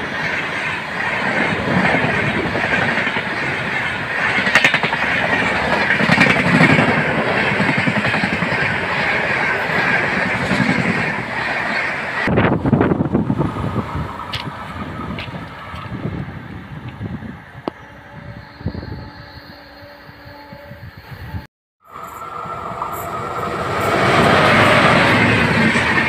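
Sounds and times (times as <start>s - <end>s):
train wheels clickety-clack: 0.0s - 12.3s.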